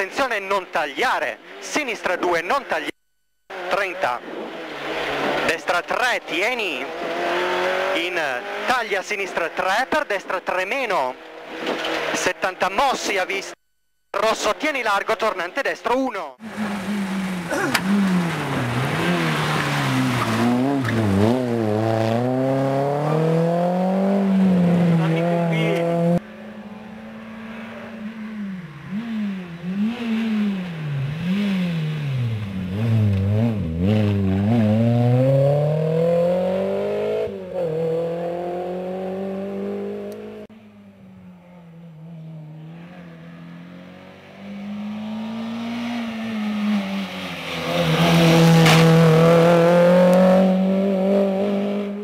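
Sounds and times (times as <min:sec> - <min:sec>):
rally car engine revving: 0:03.5 - 0:12.6, 0:16.4 - 0:40.5, 0:41.4 - 0:52.0.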